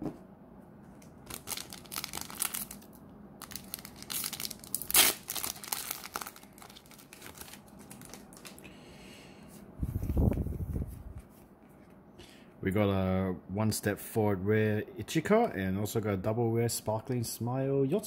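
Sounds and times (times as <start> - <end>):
plastic wrapper crinkling: 1.0 - 8.6
plastic wrapper ripping: 1.2 - 8.6.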